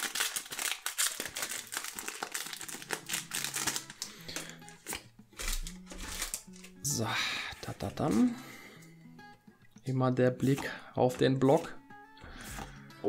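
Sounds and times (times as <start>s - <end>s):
foil wrapper crinkling: 0.0s - 6.8s
quiet background music: 0.0s - 13.0s.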